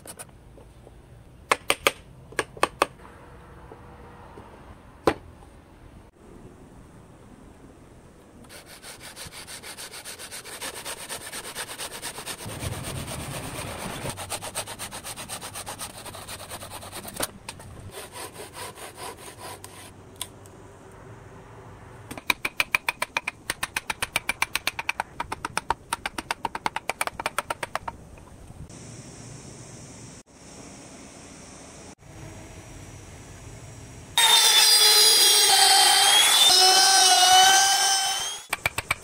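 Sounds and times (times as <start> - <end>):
hand saw cutting wood: 8.5 - 17.3, 17.9 - 19.9.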